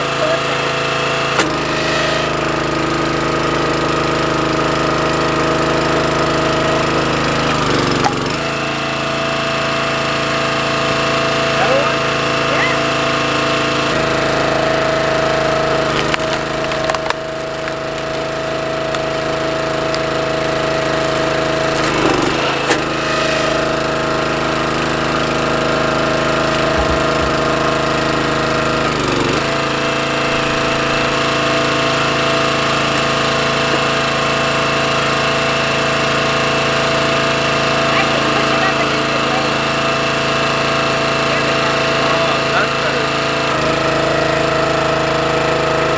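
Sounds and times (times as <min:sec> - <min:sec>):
small gasoline engine running: 0:00.0 - 0:45.9
wood splitting crack: 0:01.3 - 0:03.4, 0:07.4 - 0:08.5, 0:15.6 - 0:34.4.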